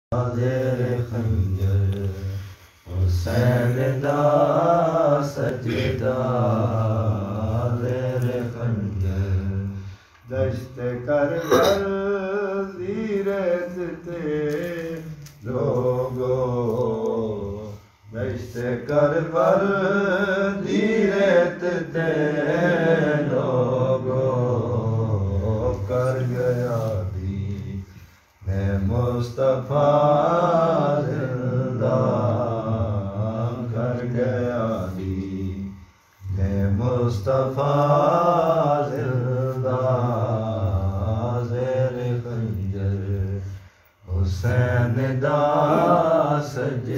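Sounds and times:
man chanting a lament: 0.1s - 46.9s.

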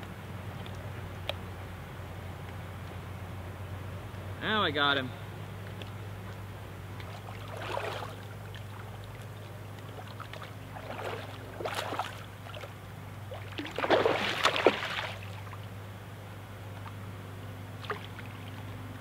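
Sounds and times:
steady low hum: 0.0s - 19.0s
water splashing: 5.8s - 15.7s, 17.8s - 18.7s.

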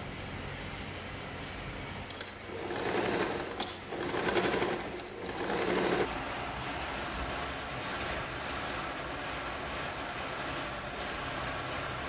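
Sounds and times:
sewing machine clicks: 2.1s - 6.1s
sewing machine stitching: 2.1s - 6.1s.

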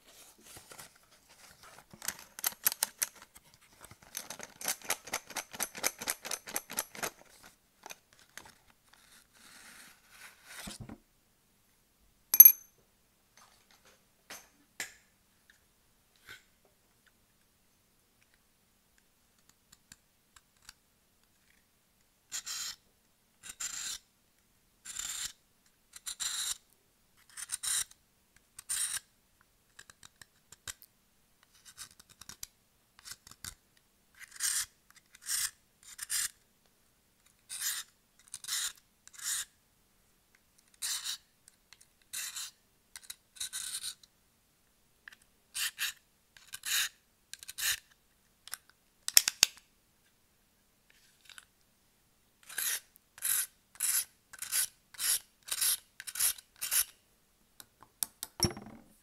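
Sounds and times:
blade scraping chalk: 23.4s - 24.0s, 24.8s - 25.4s, 26.0s - 26.6s, 27.2s - 28.0s, 28.6s - 29.0s, 34.2s - 36.4s, 37.5s - 39.5s, 40.8s - 41.2s, 42.1s - 42.6s, 43.4s - 44.0s, 45.6s - 47.8s, 52.4s - 56.9s.

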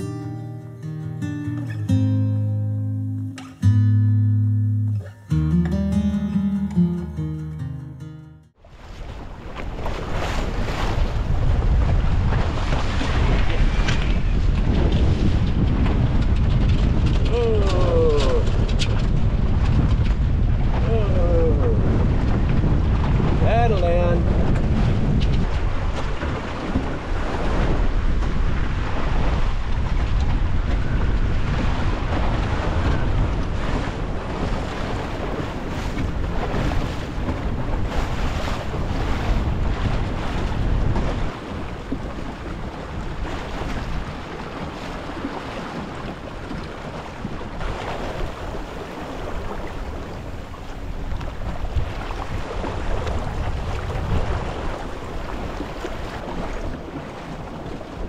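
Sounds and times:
water splashing past hull: 8.5s - 58.0s
wind buffeting microphone: 8.6s - 58.0s.

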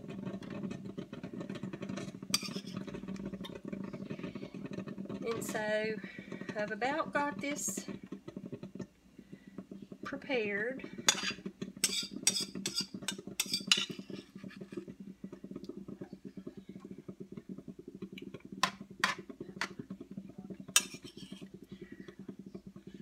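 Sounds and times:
utensil clinking against bowl: 11.1s - 14.2s.

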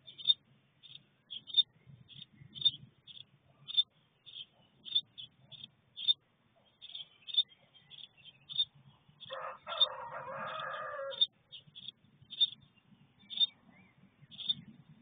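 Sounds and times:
small bird chirping: 0.0s - 15.0s
rooster crowing: 9.3s - 11.3s.

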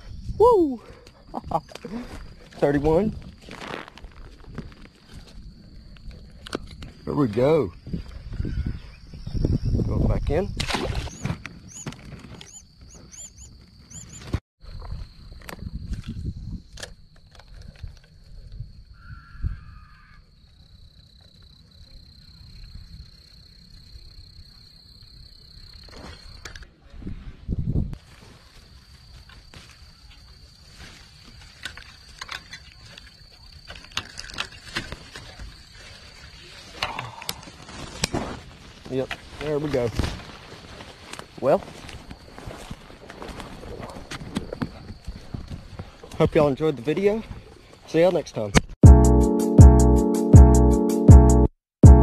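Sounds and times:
wind rumbling on microphone: 0.0s - 20.9s, 26.4s - 28.0s, 34.6s - 46.5s
twigs snapping and branches rustling: 1.7s - 7.0s, 30.8s - 46.2s
bird chirping: 11.0s - 14.4s.

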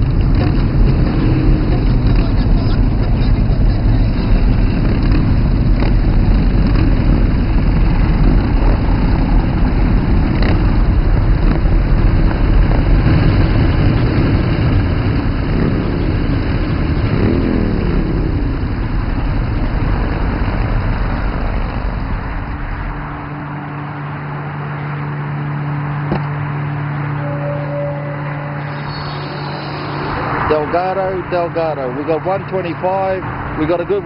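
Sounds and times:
vehicle engine: 0.0s - 34.0s.

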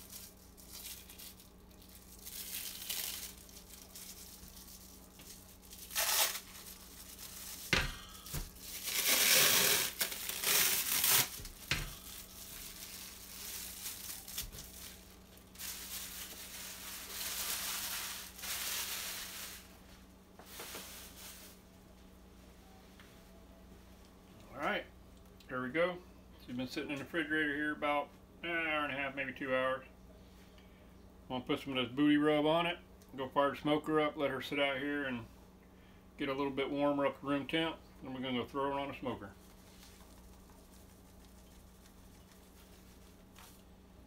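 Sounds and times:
plastic cling wrap crinkling and tearing: 0.0s - 19.8s, 20.4s - 21.6s, 39.4s - 43.7s.

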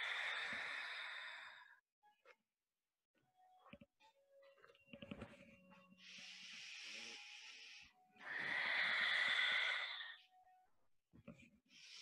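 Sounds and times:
person breathing: 0.0s - 1.8s, 6.0s - 10.2s, 11.7s - 12.0s.

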